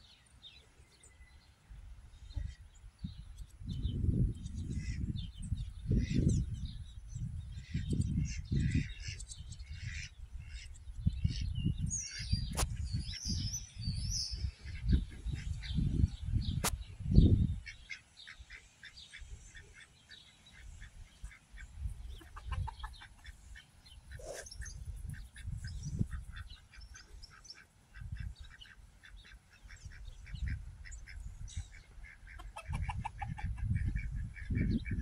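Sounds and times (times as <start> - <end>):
ducks quacking: 4.7 - 5.1, 7.6 - 11.5, 17.6 - 35.0
gusty low rumbles: 11.0 - 17.6
chickens clucking: 18.5 - 35.0.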